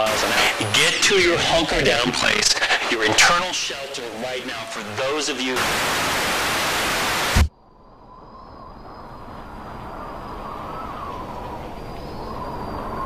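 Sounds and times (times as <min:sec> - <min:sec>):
television static hiss: 0:00.0 - 0:07.5
low rumbling with wavering whistle: 0:07.5 - 0:13.0.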